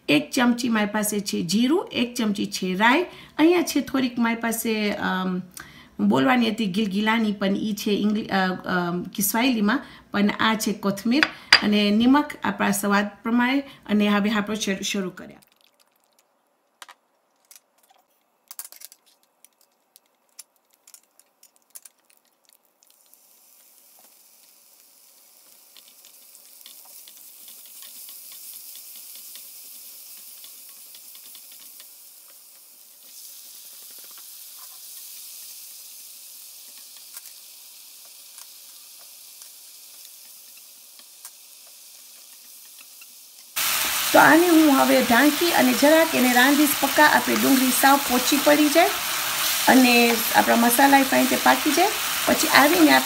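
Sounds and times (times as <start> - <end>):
spices sizzling in hot oil: 18.6 - 53.0.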